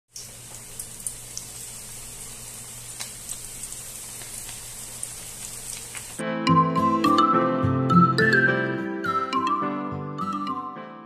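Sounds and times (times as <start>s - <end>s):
chicken deep-frying in oil: 0.1s - 6.2s.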